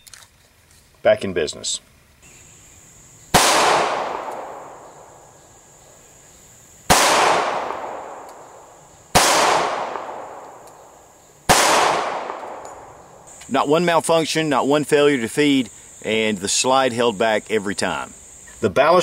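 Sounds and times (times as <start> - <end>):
pistol shots echoing: 3.3 - 5.4, 6.9 - 13.2.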